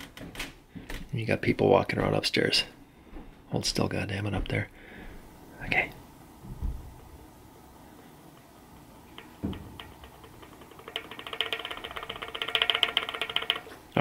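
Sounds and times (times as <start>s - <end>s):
bicycle hub axle clicking: 9.2s - 13.8s.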